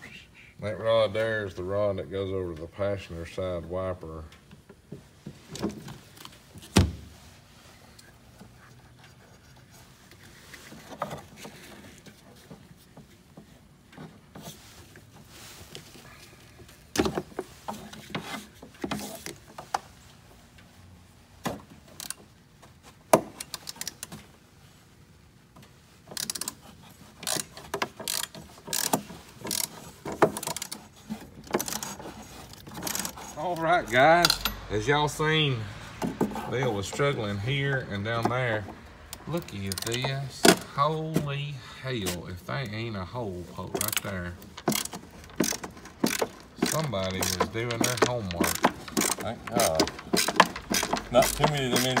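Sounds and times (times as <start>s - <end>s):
metallic clicks of hand tools: 34.2s - 34.6s, 43.8s - 52.0s.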